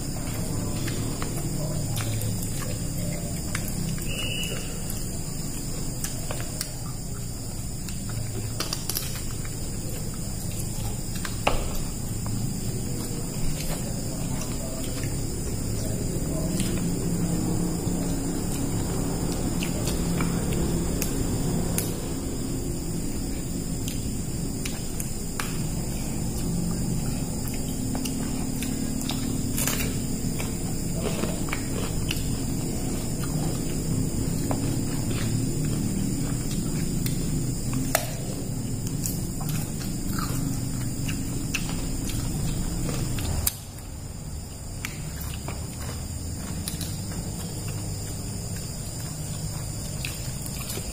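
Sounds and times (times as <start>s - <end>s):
clicks and taps of eating: 0.0s - 43.9s, 44.5s - 50.9s
steady high drone: 0.0s - 50.9s
steady low hum: 0.0s - 50.9s
clicks and taps of eating from plates: 0.2s - 17.2s.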